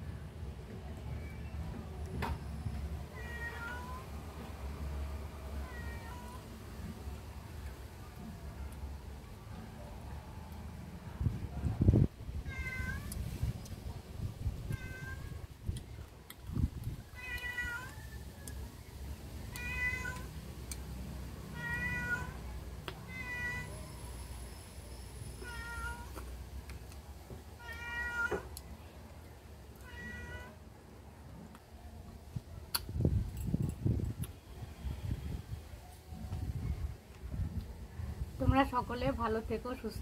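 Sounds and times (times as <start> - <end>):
cat meowing: 3.1 - 4.1, 12.5 - 13.2, 14.7 - 15.4, 17.2 - 18.1, 19.5 - 20.3, 21.5 - 22.4, 23.1 - 23.8, 25.4 - 26.1, 27.6 - 28.5, 29.8 - 30.6.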